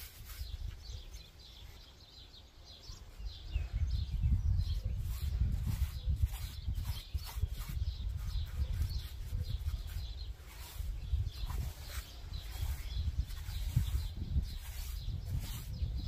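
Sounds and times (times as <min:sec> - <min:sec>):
paintbrush scrubbing on stone: 0:00.0 - 0:01.0, 0:04.6 - 0:16.0.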